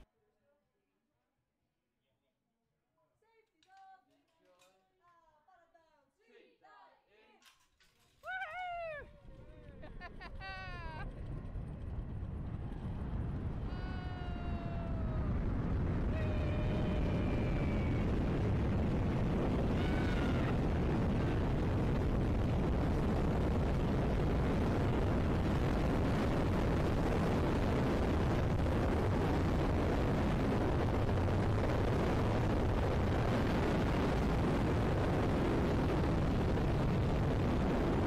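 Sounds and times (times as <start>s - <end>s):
person whooping: 8.2s - 9.2s, 10.3s - 11.0s, 13.6s - 18.5s, 19.6s - 21.4s
wind rushing over microphone: 9.0s - 38.0s.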